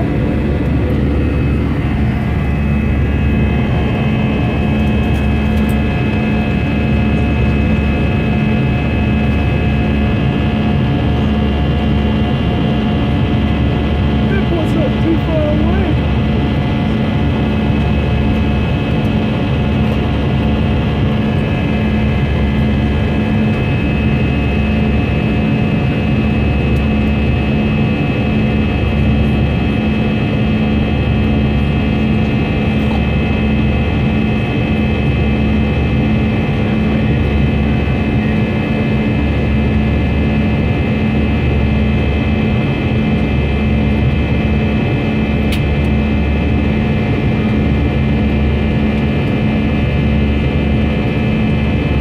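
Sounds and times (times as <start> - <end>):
low cabin rumble: 0.0 - 27.6
jet engines whining: 0.0 - 52.0.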